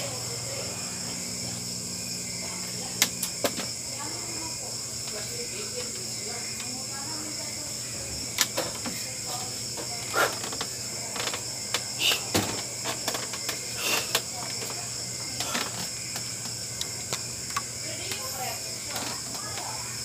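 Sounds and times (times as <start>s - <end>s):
night insects chirring: 0.0s - 20.0s
knocks and thuds of gym equipment: 12.1s - 13.3s.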